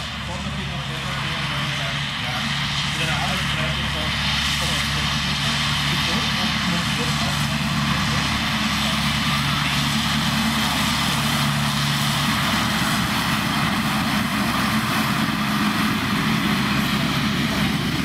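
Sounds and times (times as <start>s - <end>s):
tractor engine drone: 0.0s - 18.0s.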